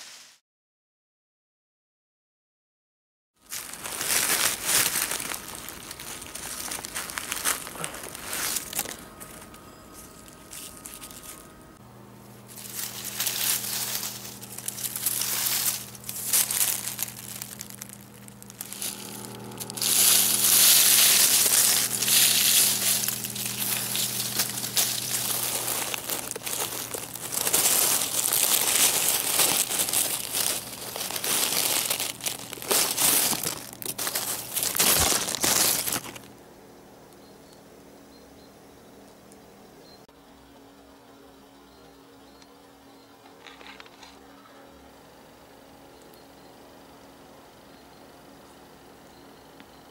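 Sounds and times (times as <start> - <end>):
dry leaves rustling and crackling: 3.4 - 11.6, 12.3 - 36.4.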